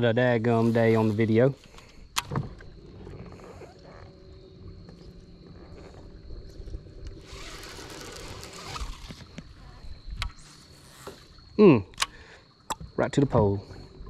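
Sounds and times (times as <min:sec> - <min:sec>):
low motor hum: 0:01.7 - 0:11.0
fishing reel spool hissing: 0:06.8 - 0:09.7.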